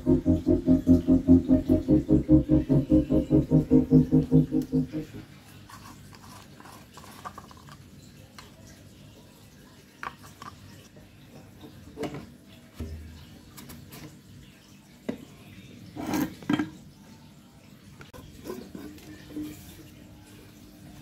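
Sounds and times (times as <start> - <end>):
low steady hum: 0.0 - 5.3.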